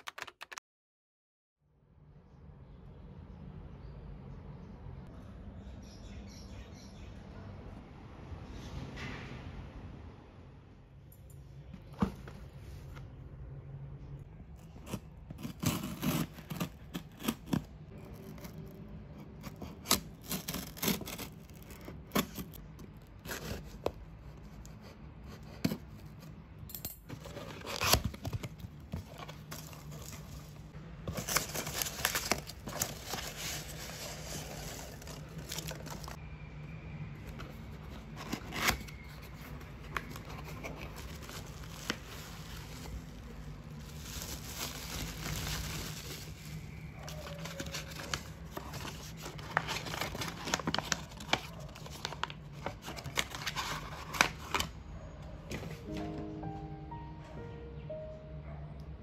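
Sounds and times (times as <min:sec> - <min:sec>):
paper tearing and scraping: 0:14.6 - 0:18.8, 0:19.4 - 0:23.8.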